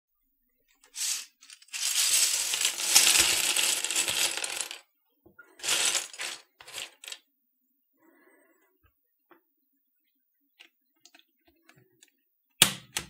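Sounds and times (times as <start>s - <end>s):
keycaps rattling in sieve: 0.9s - 4.5s, 5.6s - 7.1s.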